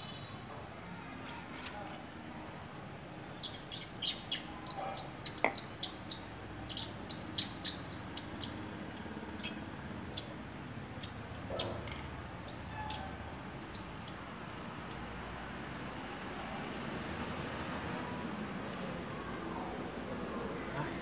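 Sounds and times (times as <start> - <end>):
low background noise: 0.0 - 21.0.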